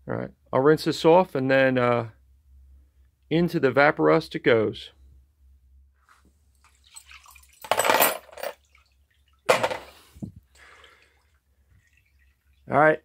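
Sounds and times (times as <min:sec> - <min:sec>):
liquid sloshing and splashing: 0:06.6 - 0:07.7, 0:08.5 - 0:09.6, 0:10.5 - 0:12.7
basket draining in bucket: 0:06.7 - 0:07.9, 0:10.6 - 0:12.7.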